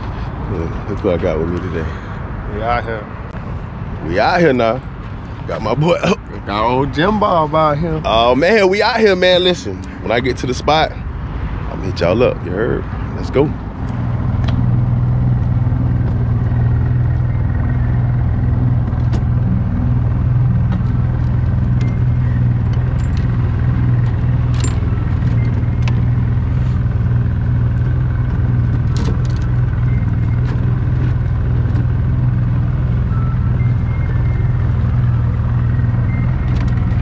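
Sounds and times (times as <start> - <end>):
outboard motor humming: 15.2 - 37.0.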